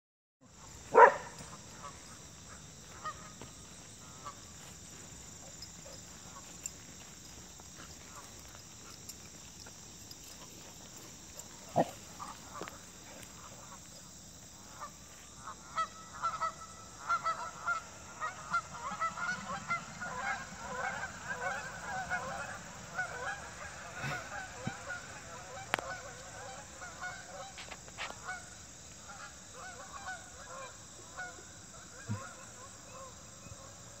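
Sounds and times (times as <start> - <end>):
geese honking: 0.6 - 4.8, 11.4 - 33.7.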